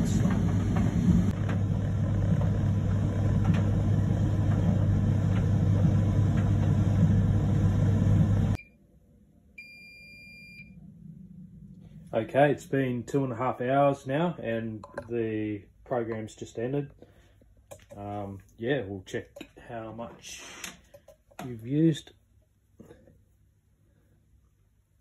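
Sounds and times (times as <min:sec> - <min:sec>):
dryer humming: 0:00.0 - 0:08.6.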